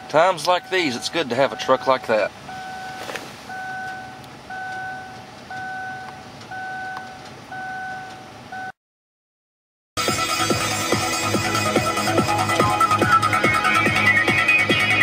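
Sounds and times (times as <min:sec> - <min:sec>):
electronic beeper tone: 0:00.5 - 0:07.0.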